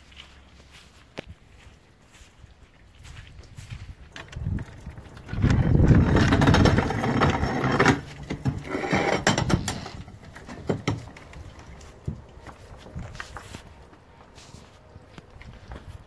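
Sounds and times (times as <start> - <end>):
footsteps: 0.0 - 16.0
wooden door scraping and rattling: 4.2 - 11.2.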